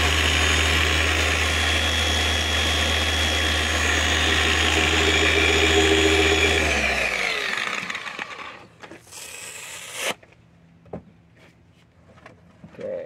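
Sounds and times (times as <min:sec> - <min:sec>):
polisher motor whine spinning down: 0:00.0 - 0:08.7.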